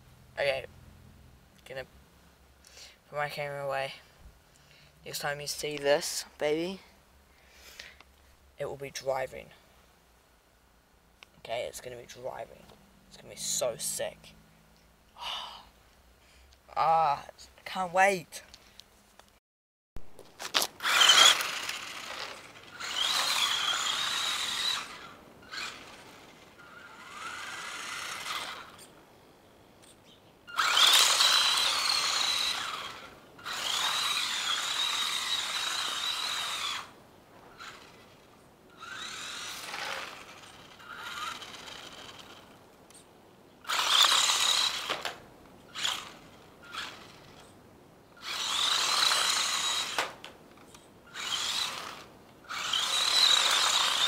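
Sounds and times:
rc truck motor whining: 20.5 - 29.0, 29.8 - 43.0, 43.6 - 47.6, 48.2 - 54.0.

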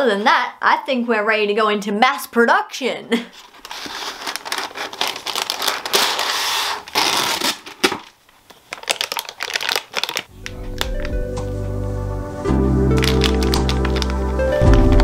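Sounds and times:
crinkling and rustling: 3.3 - 11.5, 12.9 - 15.0.

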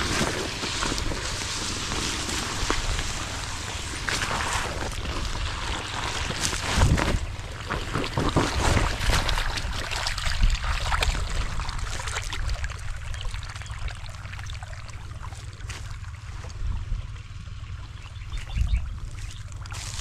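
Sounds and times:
crackling and rustling: 0.0 - 9.7
wind rumbling on microphone: 0.0 - 13.8, 15.1 - 20.0
water trickling from hose: 0.0 - 16.6, 17.8 - 20.0.

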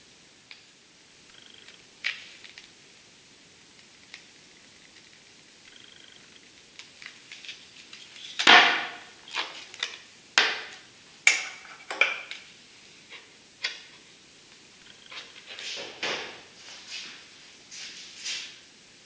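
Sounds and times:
plastic sheet crackling and popping: 1.6 - 3.0, 3.7 - 5.7, 6.4 - 12.5.

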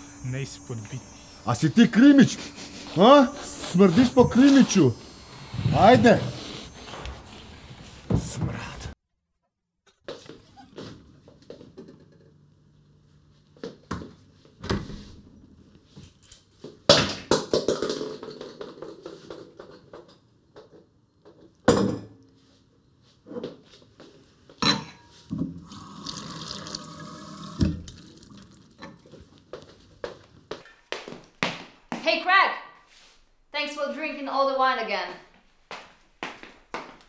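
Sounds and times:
wine pouring into glass: 25.6 - 29.0.

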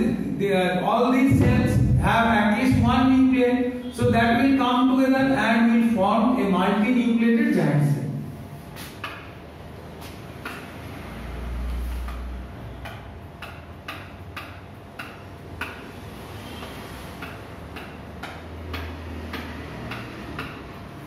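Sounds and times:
marker tapping on whiteboard: 8.8 - 9.4, 10.0 - 10.9, 11.7 - 21.0.

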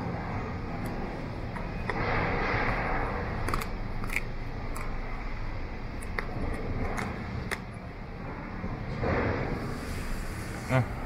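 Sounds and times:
dog chewing frozen food: 3.3 - 5.1.

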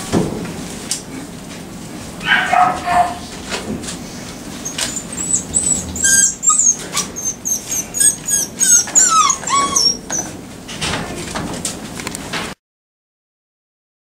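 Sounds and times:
puppies whining and yelping: 2.2 - 3.3, 4.5 - 10.4.

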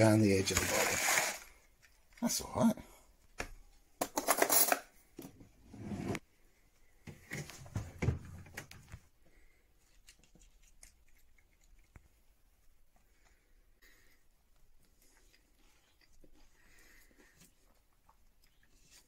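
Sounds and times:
cutlery rattling: 4.0 - 4.9.

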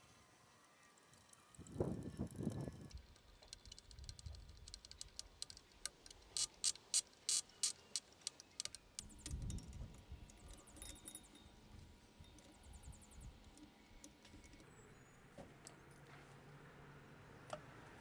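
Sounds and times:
screwdriver clicking and scraping: 3.5 - 9.8.

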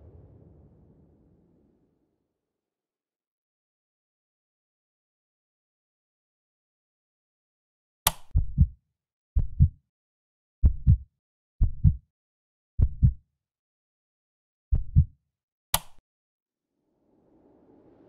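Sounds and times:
sharp click: 8.1 - 8.4, 15.7 - 16.0
heartbeat thumps: 8.4 - 8.8, 9.4 - 9.8, 10.6 - 11.0, 11.6 - 12.0, 12.8 - 13.2, 14.7 - 15.1.

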